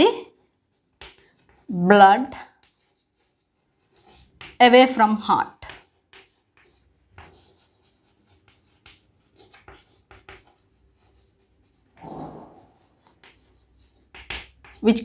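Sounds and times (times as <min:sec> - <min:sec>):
chalk scratching on chalkboard: 0:00.0 - 0:15.0.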